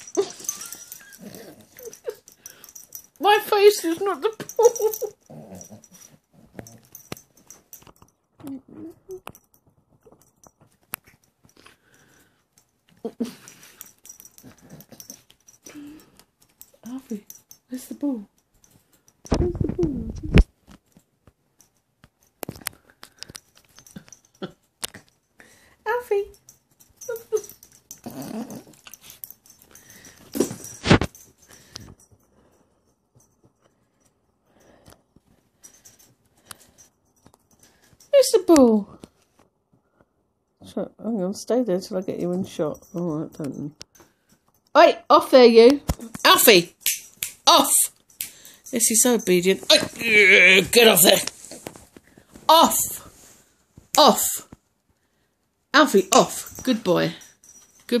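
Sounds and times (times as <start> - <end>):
puppy play noises: 0.0 - 17.8, 26.3 - 33.6.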